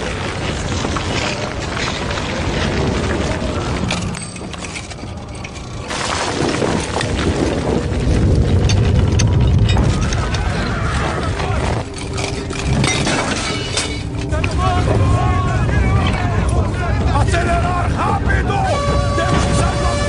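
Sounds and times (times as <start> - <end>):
cracks and crashes of falling material: 0.0 - 20.0
deep rumble: 0.0 - 20.0
music: 9.7 - 20.0.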